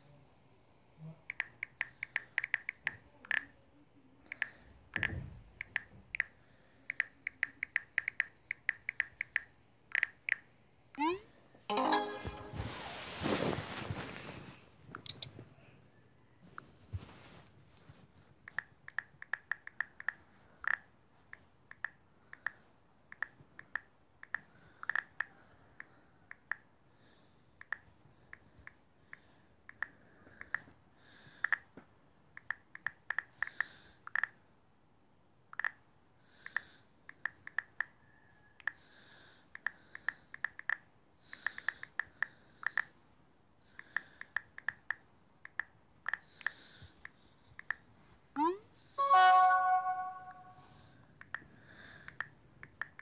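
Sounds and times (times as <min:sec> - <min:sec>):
phone keyboard key clicks: 0:15.0 - 0:15.3.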